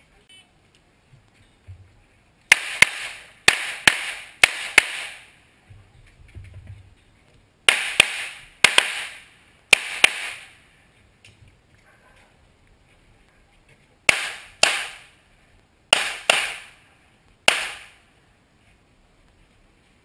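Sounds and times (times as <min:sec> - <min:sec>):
handgun shots: 0:02.5 - 0:05.2, 0:07.7 - 0:10.6, 0:14.1 - 0:15.1, 0:15.9 - 0:16.8, 0:17.5 - 0:18.0.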